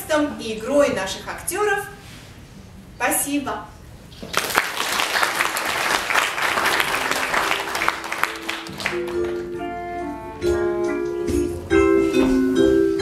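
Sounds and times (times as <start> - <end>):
audience applause: 4.3 - 9.5
instrumental music: 6.5 - 13.0.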